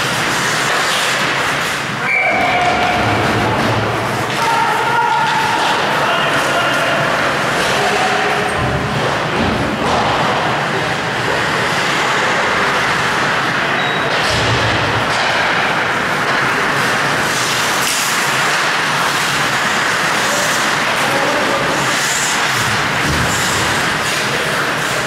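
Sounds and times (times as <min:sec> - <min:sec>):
skate blades scraping ice: 0:00.0 - 0:08.1, 0:15.3 - 0:25.0
ice hockey game noise: 0:00.0 - 0:25.0.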